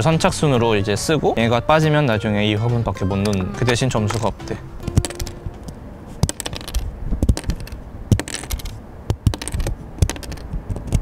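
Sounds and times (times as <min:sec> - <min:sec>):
cardboard tokens popping out: 0:04.1 - 0:11.0.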